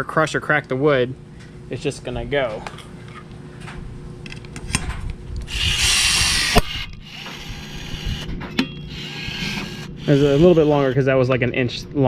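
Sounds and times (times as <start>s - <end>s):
rivet tool motor running: 5.4s - 11.0s.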